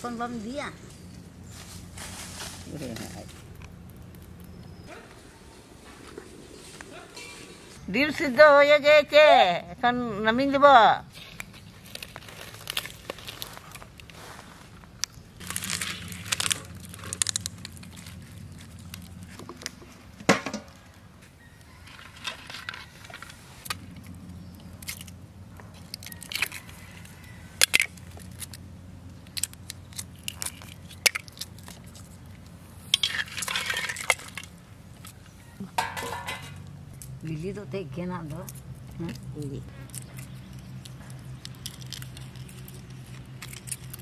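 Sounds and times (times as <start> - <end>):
rustling and crunching: 0.0 - 7.9, 11.1 - 37.2, 38.2 - 44.0
eggs clinking on steel plate: 35.8 - 36.6.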